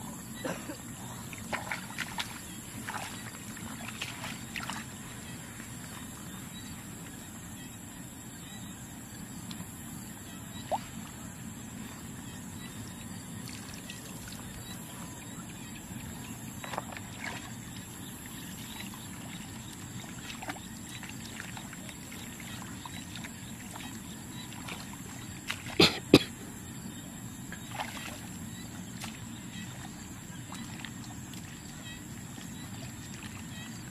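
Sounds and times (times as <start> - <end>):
muddy water splashing: 1.0 - 7.1, 13.3 - 26.3, 27.5 - 33.9.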